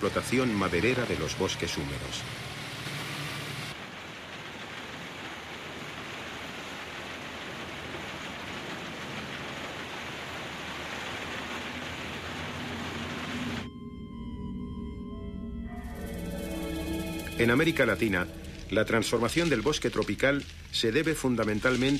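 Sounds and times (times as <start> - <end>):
heavy truck engine: 0.0 - 3.8, 11.4 - 13.7
steady hiss: 15.8 - 21.9.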